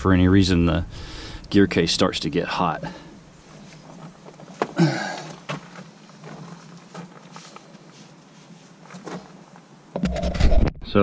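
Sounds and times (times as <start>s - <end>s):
handling clicks and rustles: 3.3s - 9.8s.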